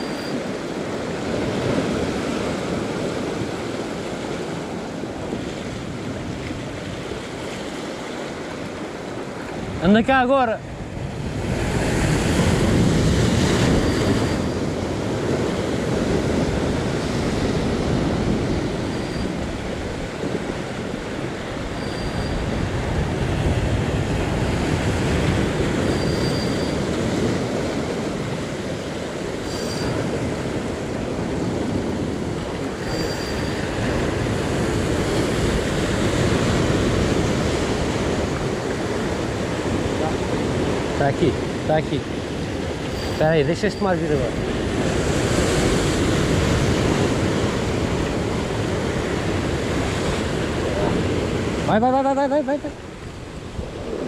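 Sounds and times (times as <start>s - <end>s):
surf washing against rocks: 0.0s - 54.0s
wind on microphone: 10.6s - 51.8s, 52.6s - 54.0s
faint short high chirp: 18.9s - 19.3s, 21.8s - 22.5s, 25.9s - 26.8s, 29.5s - 30.0s, 32.8s - 33.6s.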